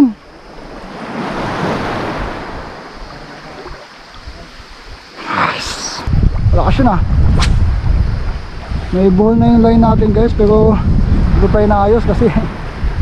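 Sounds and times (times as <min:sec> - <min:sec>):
small waves washing: 0:00.0 - 0:06.1
wind on microphone: 0:00.0 - 0:13.0.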